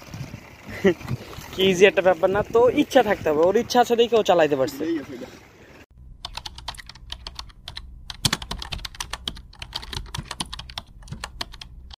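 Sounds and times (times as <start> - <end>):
low steady hum: 6.0 - 12.0
keyboard key clicks: 6.3 - 11.7.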